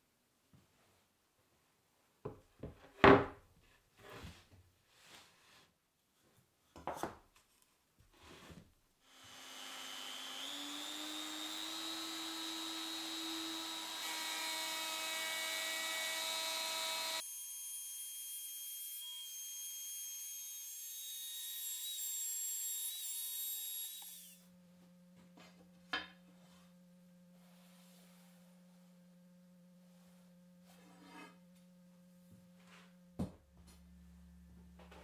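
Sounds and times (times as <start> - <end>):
router whining: 9.1 - 17.7, 21.5 - 24.5.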